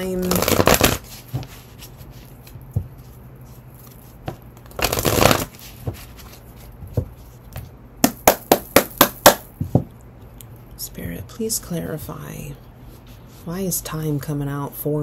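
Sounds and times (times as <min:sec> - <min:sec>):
cards being shuffled: 0:00.2 - 0:07.6.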